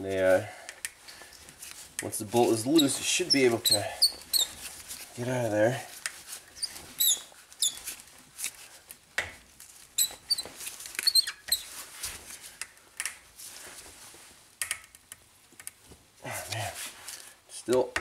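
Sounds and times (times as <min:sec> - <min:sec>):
pliers squeaking on metal: 0:02.5 - 0:04.7, 0:06.5 - 0:07.9, 0:10.0 - 0:11.7.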